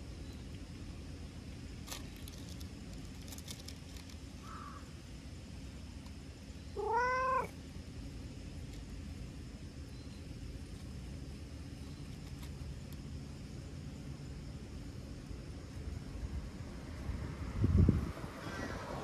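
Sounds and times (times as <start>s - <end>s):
cat meowing: 6.8s - 7.6s.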